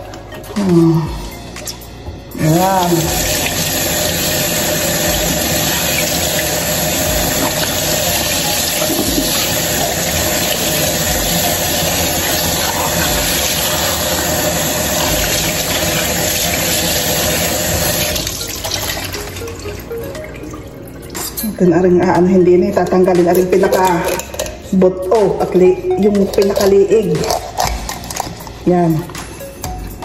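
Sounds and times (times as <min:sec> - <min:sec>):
faucet running: 0:00.0 - 0:29.8.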